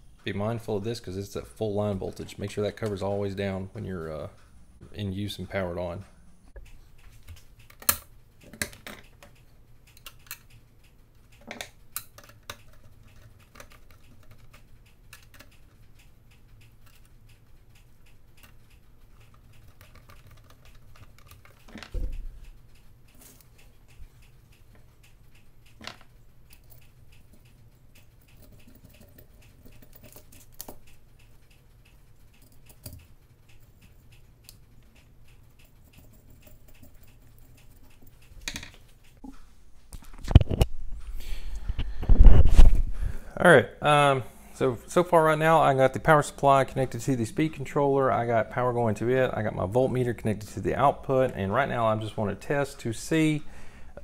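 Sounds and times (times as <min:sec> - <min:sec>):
small clicks and taps: 0:06.5 - 0:39.3, 0:39.9 - 0:40.7.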